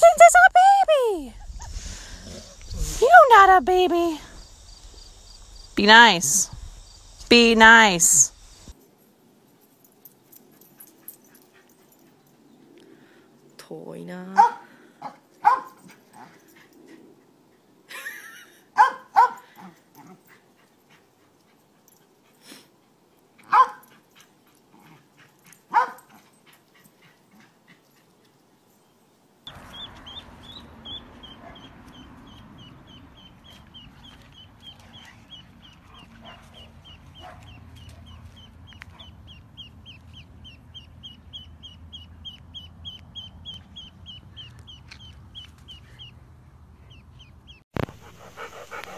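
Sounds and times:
low background hiss: 2.3s - 12.3s
dog barking: 14.4s - 15.8s, 18.8s - 19.6s, 23.5s - 23.8s, 25.7s - 26.1s, 31.2s - 31.8s, 36.0s - 38.2s
duckling peeping: 29.5s - 35.8s, 38.4s - 46.1s.

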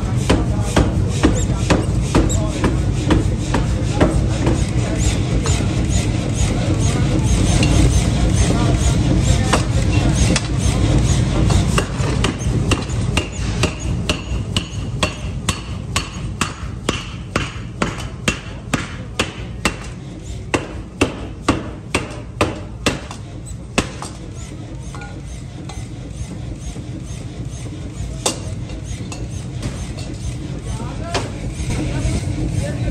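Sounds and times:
machine low rumble: 29.4s - 32.9s.

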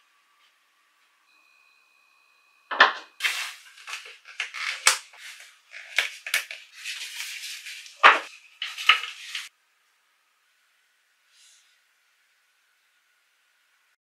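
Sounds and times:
cloth rustling: 3.2s - 9.5s.

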